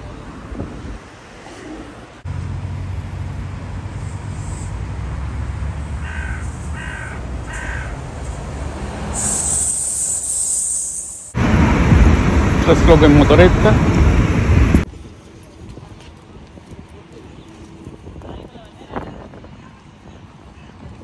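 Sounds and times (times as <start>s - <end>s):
low rumble of street traffic: 0.0s - 21.0s
crow cawing: 6.0s - 8.0s
loud high hiss: 9.1s - 14.7s.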